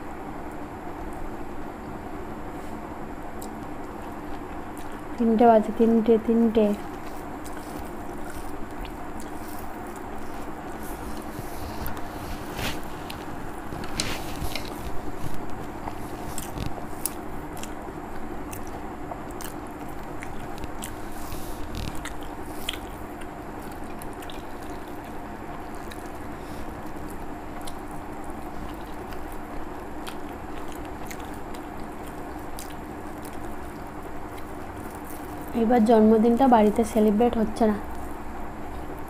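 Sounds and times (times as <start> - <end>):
steady hum: 0.0 - 39.0
person chewing: 3.4 - 5.1, 6.8 - 35.5.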